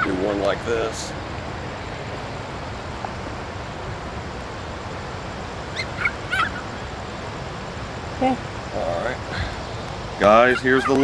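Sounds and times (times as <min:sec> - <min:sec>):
fast-flowing water rushing: 0:00.0 - 0:11.0
short bird calls: 0:05.7 - 0:07.0.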